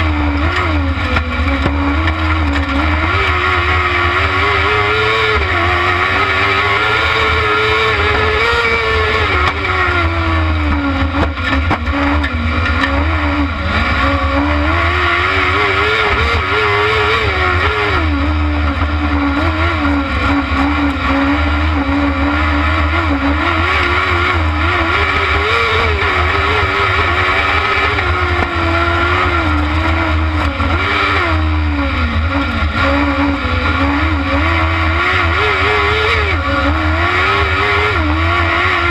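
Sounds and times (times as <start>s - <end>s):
buggy engine revving: 0.0s - 38.9s.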